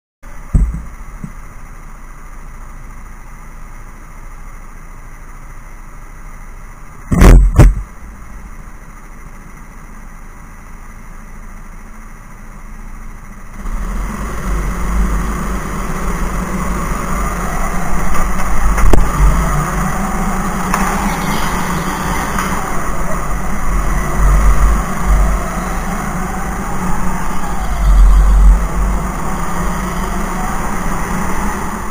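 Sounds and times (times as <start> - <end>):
loud sharp knocks: 0.5 - 1.4
go-kart engines: 13.1 - 31.9.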